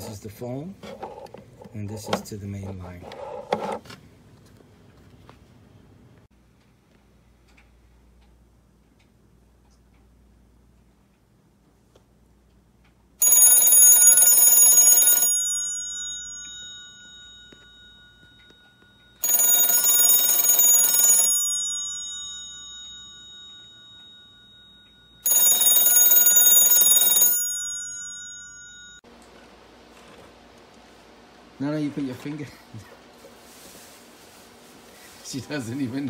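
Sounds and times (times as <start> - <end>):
telephone bell ringing: 13.2 - 29.0.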